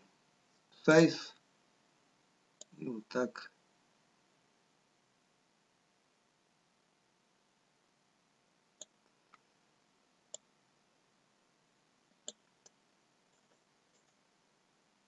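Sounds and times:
computer mouse clicks: 0:08.8 - 0:09.4, 0:12.2 - 0:14.2.

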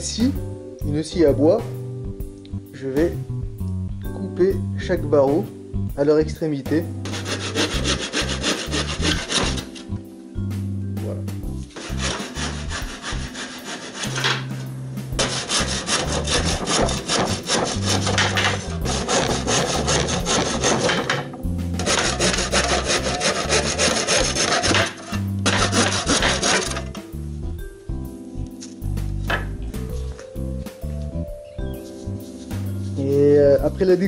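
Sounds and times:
hand saw cutting wood: 0:07.0 - 0:09.9, 0:11.8 - 0:14.5, 0:15.2 - 0:27.0.

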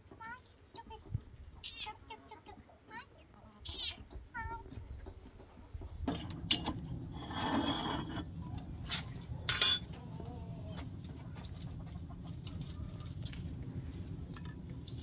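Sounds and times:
steady low hum: 0:06.0 - 0:15.0
scraping rub: 0:07.0 - 0:09.2
dishes and utensils clinking: 0:09.4 - 0:10.0
kitchenware clattering: 0:09.4 - 0:10.0.

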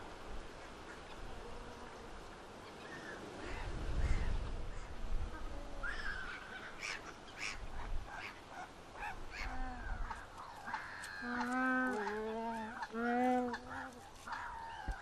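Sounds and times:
waterbirds harsh calls: 0:00.5 - 0:15.0
wind buffeting microphone: 0:03.2 - 0:06.8.

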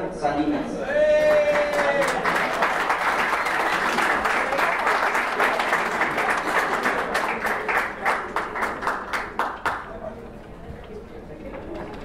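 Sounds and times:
audience applauding: 0:01.1 - 0:10.0.

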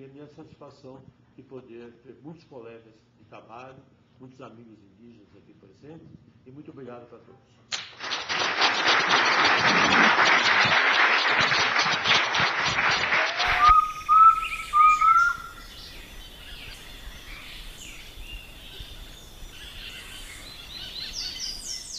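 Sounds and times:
audience applauding: 0:07.8 - 0:14.2
whistled bird chirps: 0:13.5 - 0:21.9.

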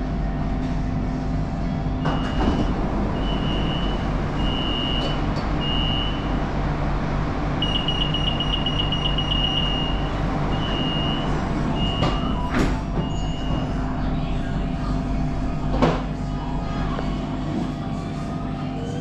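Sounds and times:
train humming: 0:00.0 - 0:19.0
door warning beeps: 0:02.0 - 0:06.3, 0:07.6 - 0:13.8.

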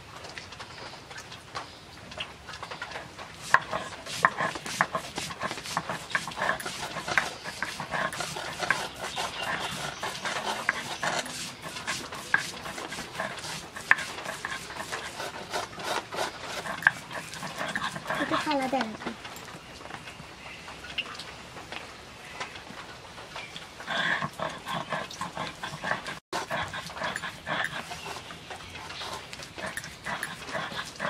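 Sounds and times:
roller rubbing and scraping: 0:02.8 - 0:19.2, 0:23.8 - 0:31.0.

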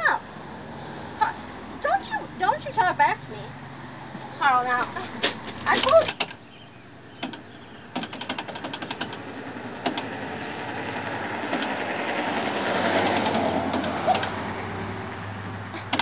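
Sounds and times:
passing vehicle: 0:00.0 - 0:16.0
vending machine buttons clicking: 0:05.5 - 0:06.5, 0:07.2 - 0:09.2, 0:09.8 - 0:10.1, 0:11.5 - 0:11.8, 0:12.9 - 0:14.4.

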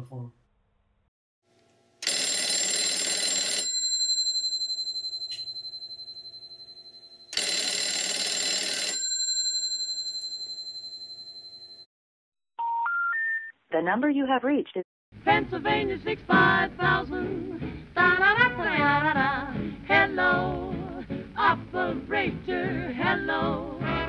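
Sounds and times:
telephone bell ringing: 0:02.0 - 0:11.9.

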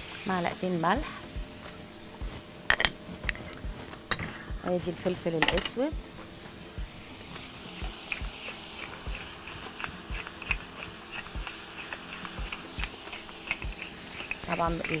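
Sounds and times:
pepper mill grinding: 0:06.9 - 0:15.0.

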